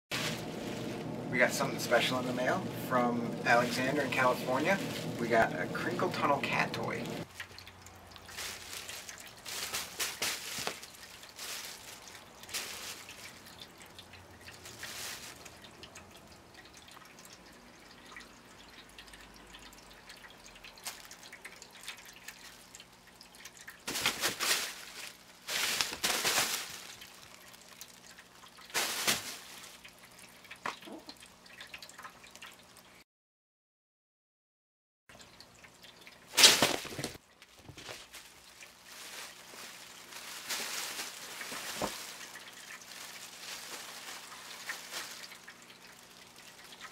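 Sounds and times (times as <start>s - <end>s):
crinkle cat toy rustling: 0.1s - 2.5s, 3.4s - 7.3s, 8.0s - 15.8s, 23.8s - 30.0s, 36.3s - 46.9s.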